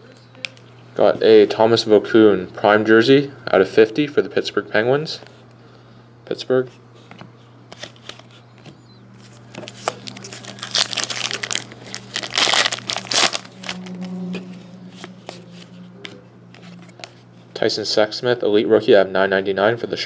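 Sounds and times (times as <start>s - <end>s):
foil wrapper tearing and crinkling: 9.4s - 14.2s.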